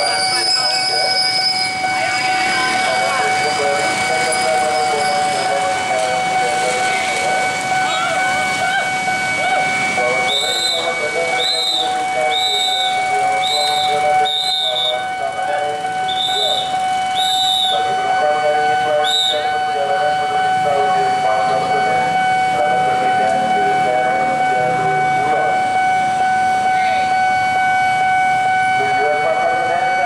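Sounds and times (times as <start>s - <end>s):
whistle blasts: 0.0s - 3.6s, 7.8s - 15.2s, 16.0s - 18.0s, 18.9s - 19.8s
voices: 0.0s - 27.5s, 28.6s - 30.0s
level-crossing warning alarm: 0.0s - 30.0s
motorbike engines: 0.0s - 30.0s.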